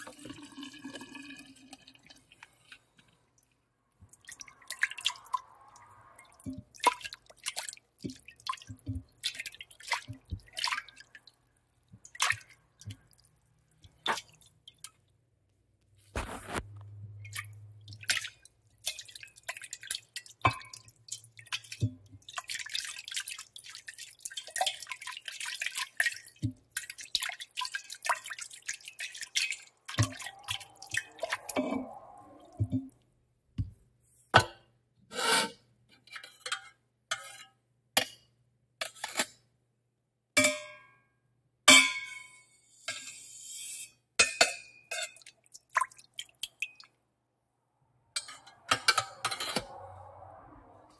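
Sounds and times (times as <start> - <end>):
crackles: 15.9 - 17.0
utensils and dishes clinking: 48.2 - 49.7.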